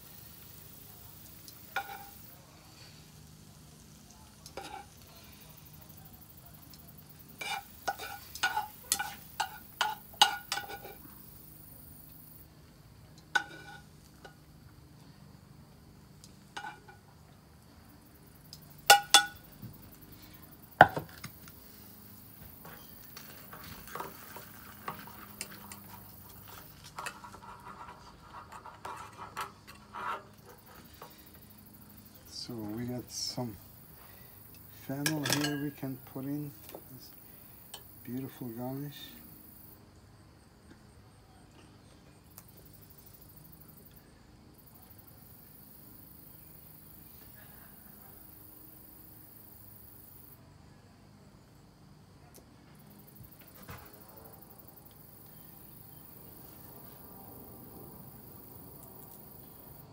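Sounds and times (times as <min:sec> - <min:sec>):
metal tongs tapping a frying pan: 0:01.4 - 0:02.2, 0:07.4 - 0:11.0, 0:16.6 - 0:17.0, 0:18.9 - 0:19.4, 0:35.0 - 0:35.8.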